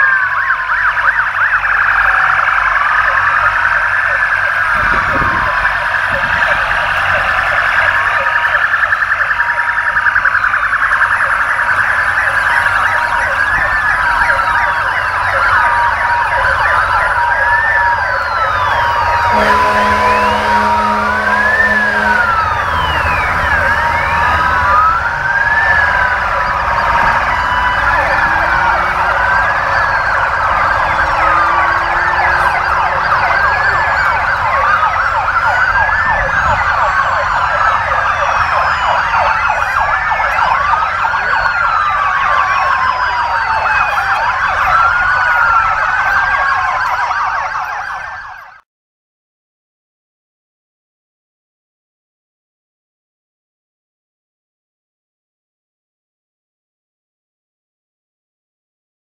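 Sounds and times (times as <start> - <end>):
rapid siren warbling: 0.0 - 48.6
emergency vehicle sirens wailing: 0.0 - 48.7.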